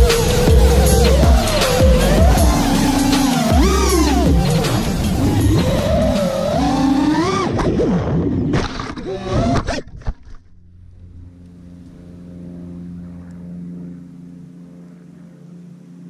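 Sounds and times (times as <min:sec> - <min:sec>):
drone motors whining: 0:00.0 - 0:15.9
faint steady hum: 0:10.5 - 0:16.0.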